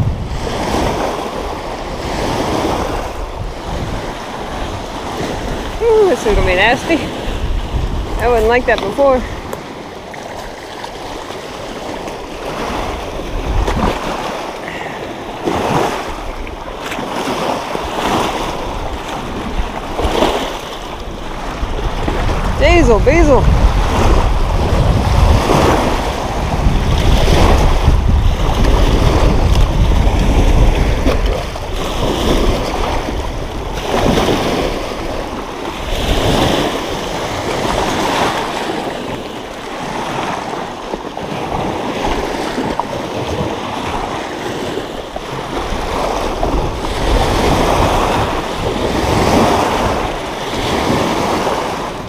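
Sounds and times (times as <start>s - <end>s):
waves breaking against rocks: 0.0s - 52.0s
wind buffeting microphone: 0.0s - 52.0s.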